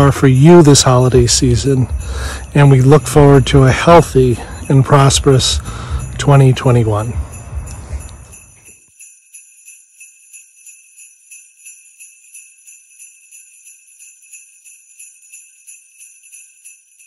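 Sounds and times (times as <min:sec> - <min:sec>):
jingle bells shaken: 0:00.0 - 0:17.0
background rumble: 0:00.7 - 0:08.4.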